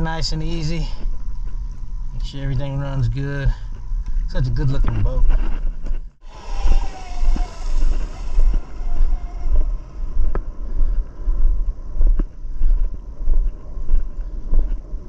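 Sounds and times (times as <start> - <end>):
wind buffeting microphone: 0.0 - 15.0
electric motors whining: 6.2 - 10.6.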